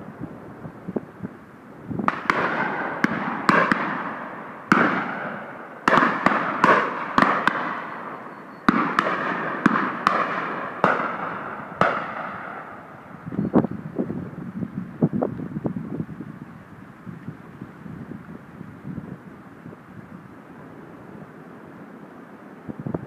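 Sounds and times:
shotgun shots with echo: 0:02.1 - 0:12.8.

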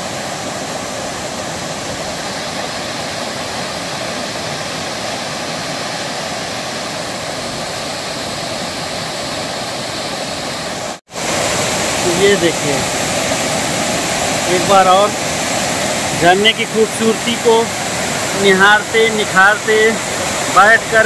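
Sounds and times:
waterfall crashing over rocks: 0:00.0 - 0:21.0.

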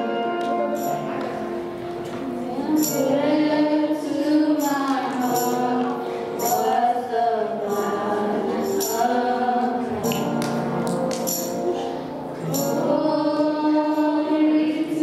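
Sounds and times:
voices singing a hymn: 0:00.0 - 0:15.0
tambourine jingling: 0:00.7 - 0:01.5, 0:02.6 - 0:03.4, 0:04.5 - 0:07.0, 0:07.6 - 0:09.4, 0:11.1 - 0:11.8, 0:12.4 - 0:13.0.

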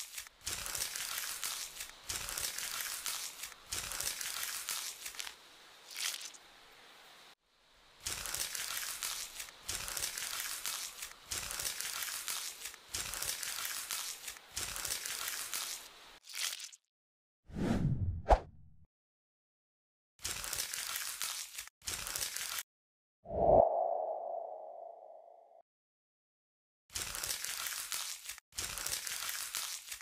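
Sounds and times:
crisp crinkling scraping strokes: 0:00.0 - 0:06.4, 0:08.0 - 0:16.0, 0:20.2 - 0:22.6, 0:27.0 - 0:30.0.

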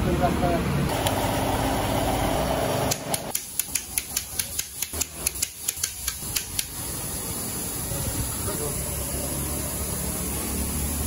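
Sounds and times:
pneumatic wrench running: 0:00.9 - 0:11.0
torque wrench clicking: 0:02.9 - 0:07.0.

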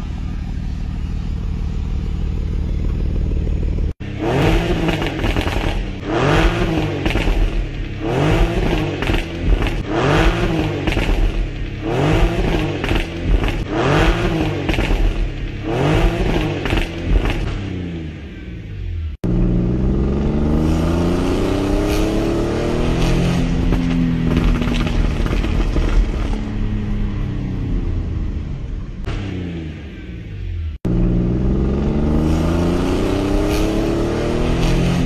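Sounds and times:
car engine idling: 0:00.0 - 0:03.9
car engine revving: 0:00.0 - 0:35.0.

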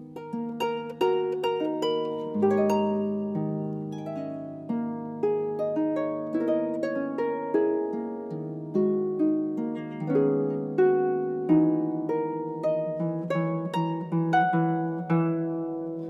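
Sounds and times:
harp plucked notes: 0:00.0 - 0:16.0.

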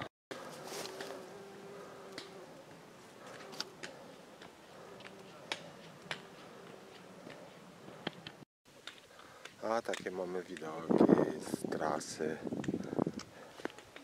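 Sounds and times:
insect buzzing: 0:00.4 - 0:07.3.

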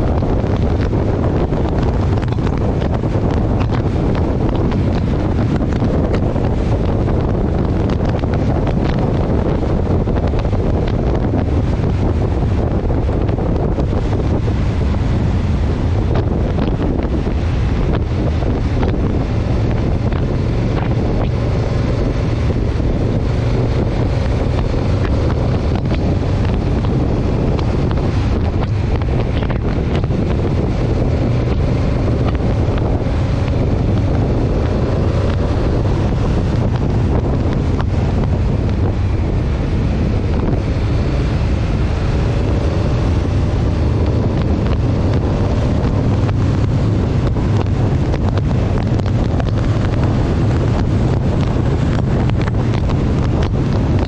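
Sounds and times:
steady low drone: 0:00.0 - 0:54.0
wind buffeting microphone: 0:00.0 - 0:54.0.

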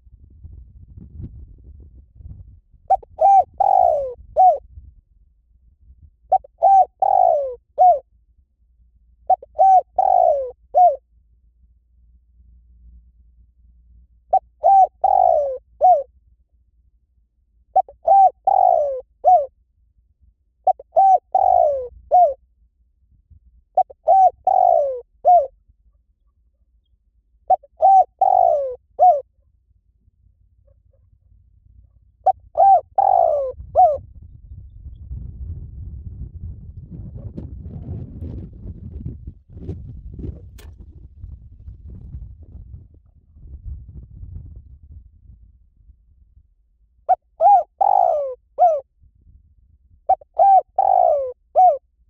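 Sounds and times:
dove cooing: 0:02.9 - 0:04.6, 0:06.3 - 0:08.0, 0:09.3 - 0:11.0, 0:14.3 - 0:16.1, 0:17.8 - 0:19.5, 0:20.6 - 0:22.4, 0:23.8 - 0:25.5, 0:27.5 - 0:29.3, 0:32.2 - 0:34.0, 0:47.1 - 0:48.8, 0:50.1 - 0:51.8.

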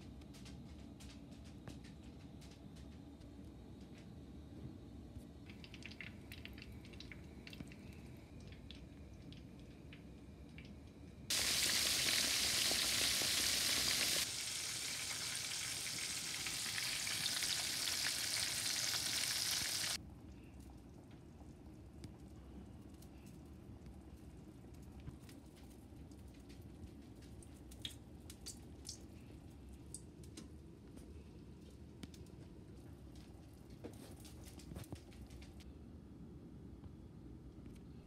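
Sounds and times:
meat sizzling in oil: 0:11.3 - 0:20.0.

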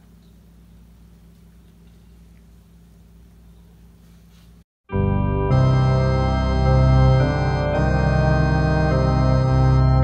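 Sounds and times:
faint hum: 0:00.0 - 0:04.6
spooky pipe organ chords: 0:04.9 - 0:10.0.

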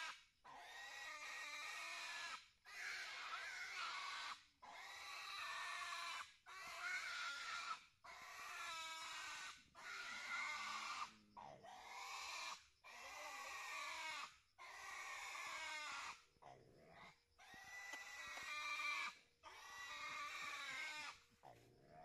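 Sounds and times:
piglet squealing: 0:06.6 - 0:11.1, 0:11.7 - 0:16.2, 0:17.0 - 0:21.2.

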